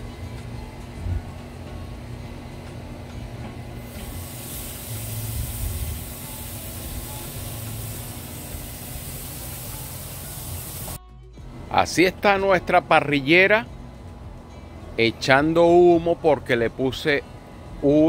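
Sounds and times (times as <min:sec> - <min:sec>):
steak sizzling on a grill: 0:03.8 - 0:11.0.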